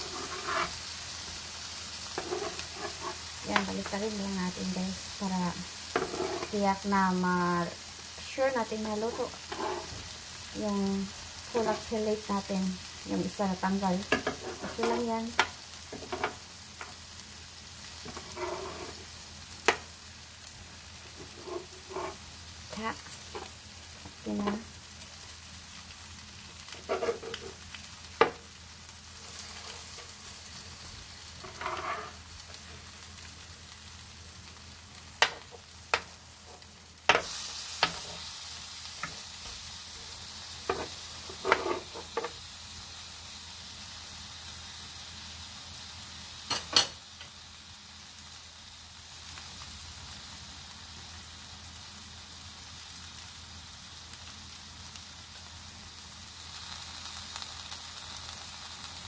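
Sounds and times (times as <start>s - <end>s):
metal spatula scraping pan: 0.0s - 0.8s, 2.2s - 3.9s, 5.9s - 6.6s, 9.1s - 10.0s, 14.1s - 15.1s, 18.0s - 19.1s, 21.2s - 22.3s, 26.7s - 27.6s, 31.4s - 32.2s, 40.7s - 42.3s
fish sizzling in oil: 0.0s - 59.0s.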